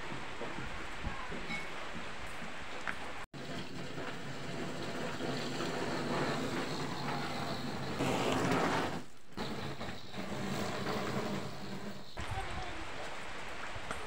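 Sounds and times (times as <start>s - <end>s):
firework spraying sparks hiss: 3.4s - 12.5s.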